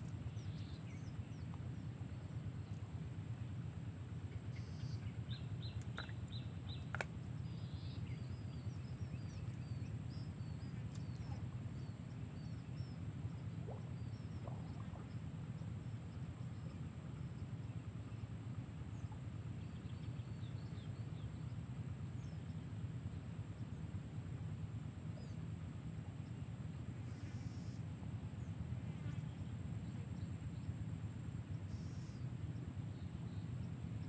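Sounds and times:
low rumble: 0.0 - 20.8
small birds chirping: 0.0 - 22.6.

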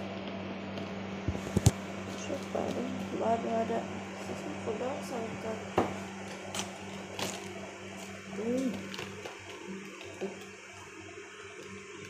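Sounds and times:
steady low hum: 0.0 - 12.0
cabbage leaves snapping: 6.3 - 10.4.

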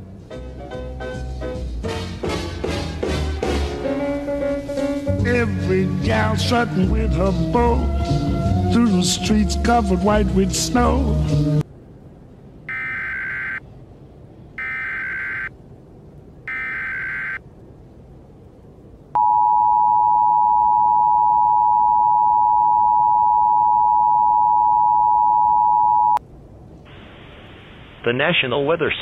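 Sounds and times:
screeching data bursts: 12.7 - 13.6, 14.6 - 15.6, 16.5 - 17.4.

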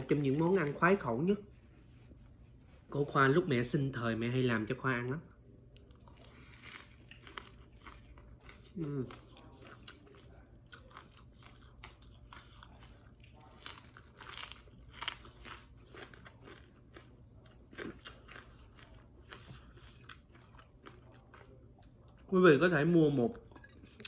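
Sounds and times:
crunchy chewing: 5.7 - 22.3.

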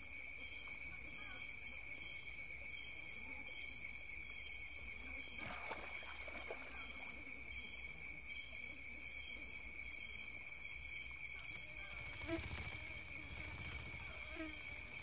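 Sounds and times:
insect chirping: 0.0 - 15.0
high-pitched insect drone: 11.8 - 15.0.

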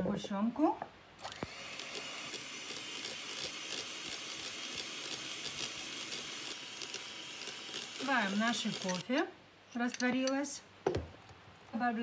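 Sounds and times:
electric hand mixer whining: 1.2 - 9.0.

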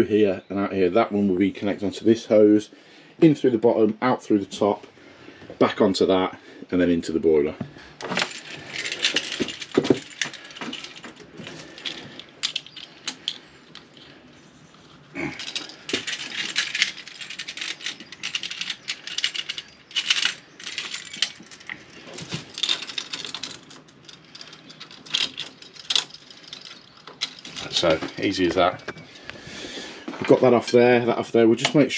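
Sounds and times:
hose handling noise: 7.6 - 14.1, 14.7 - 30.4
metallic clicks of hose couplings: 8.0 - 14.2, 14.8 - 29.4.

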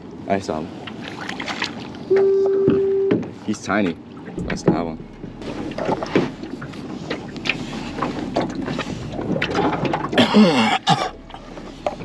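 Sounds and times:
wind: 0.0 - 12.0
knocks and rattles on aluminum hull: 3.1 - 12.0
water wash: 3.4 - 12.0.

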